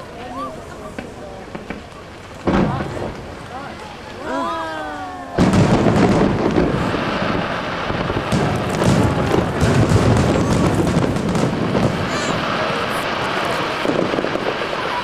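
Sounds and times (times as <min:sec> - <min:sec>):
crackle of small pops: 0:00.9 - 0:03.9, 0:05.8 - 0:06.8, 0:08.0 - 0:12.3
firework shells bursting: 0:05.4 - 0:15.0.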